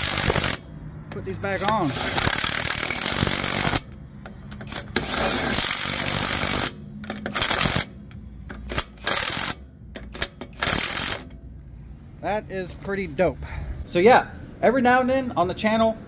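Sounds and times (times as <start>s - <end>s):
impact wrench hammering: 0.0s - 11.4s.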